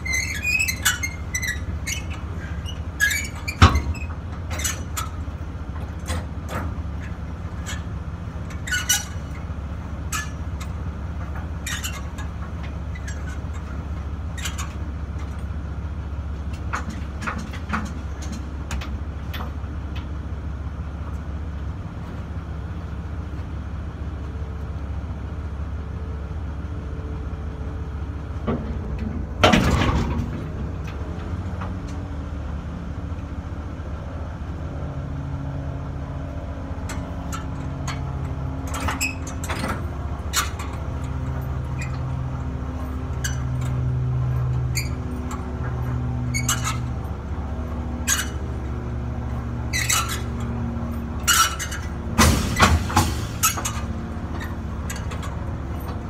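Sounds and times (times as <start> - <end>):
truck engine idling: 0.0 - 56.0
sharp clicks and knocks: 51.3 - 56.0.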